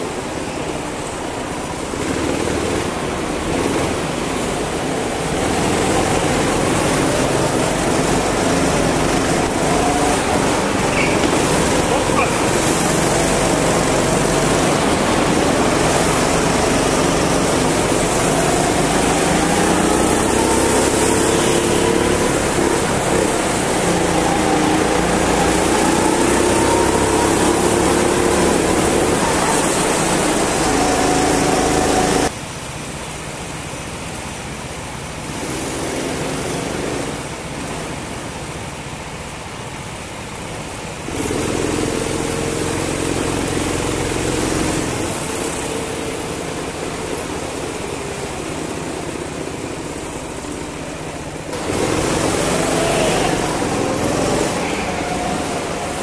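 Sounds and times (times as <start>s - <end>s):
go-kart engine racing: 0.0s - 32.4s, 33.3s - 56.0s
other karts running: 0.0s - 32.4s, 35.2s - 56.0s.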